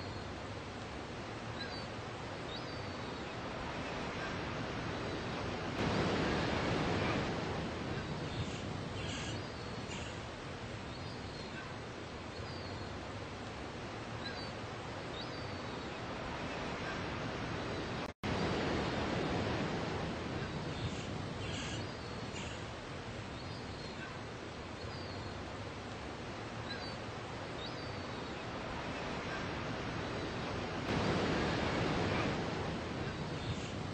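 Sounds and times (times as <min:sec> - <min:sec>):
surf washing up a beach: 0:00.0 - 0:33.9.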